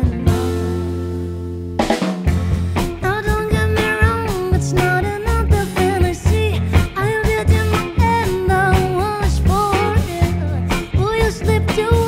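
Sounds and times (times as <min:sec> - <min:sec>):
acoustic and electric guitar: 0:00.0 - 0:12.0
double bass: 0:00.0 - 0:12.0
drum kit: 0:00.0 - 0:12.0
woman singing: 0:02.8 - 0:12.0.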